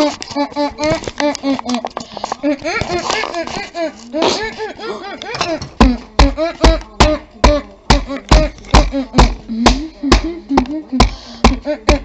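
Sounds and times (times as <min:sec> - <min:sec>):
deep rhythmic thumps: 0:05.8 - 0:12.0.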